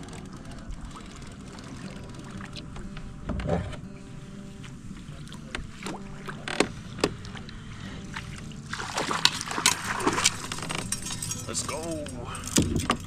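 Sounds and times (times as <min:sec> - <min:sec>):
knocks and clatter on a kayak: 0:00.0 - 0:03.8, 0:04.6 - 0:07.6, 0:08.2 - 0:11.6, 0:12.5 - 0:13.0
fish splashing: 0:05.3 - 0:11.0.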